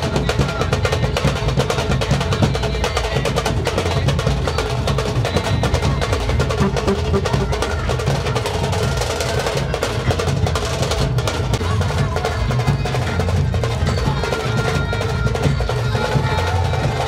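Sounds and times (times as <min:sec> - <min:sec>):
fast dense drumming: 0:06.5 - 0:08.4
band melody: 0:06.6 - 0:08.0.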